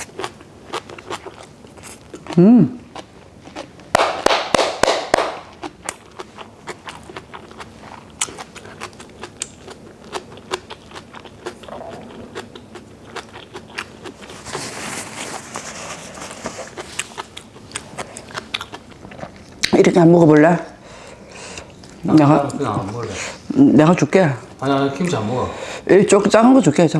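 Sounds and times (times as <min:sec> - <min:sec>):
crunching food: 0:00.0 - 0:20.0
person chewing food: 0:00.0 - 0:25.5.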